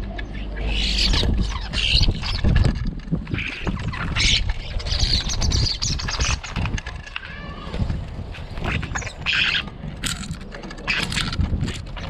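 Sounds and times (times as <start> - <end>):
starlings squawking: 0.1 - 6.8, 8.4 - 9.8
wings flapping: 0.5 - 12.0.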